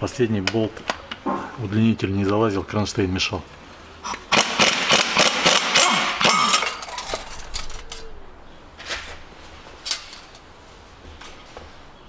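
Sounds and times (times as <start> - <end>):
impact wrench hammering: 4.3 - 6.8.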